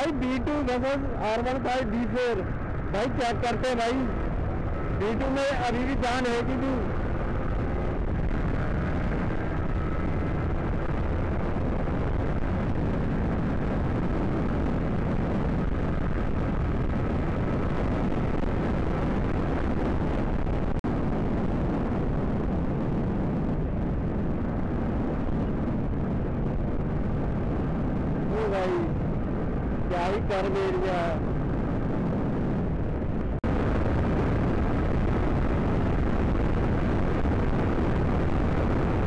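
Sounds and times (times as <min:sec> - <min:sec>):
faint motorcycle engine: 0:00.0 - 0:20.5
wind rumble on helmet: 0:00.0 - 0:39.0.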